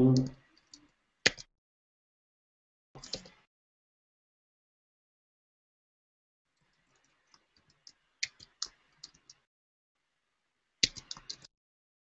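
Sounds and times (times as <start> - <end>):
computer keyboard keystrokes: 3.0 - 3.4, 10.8 - 11.5.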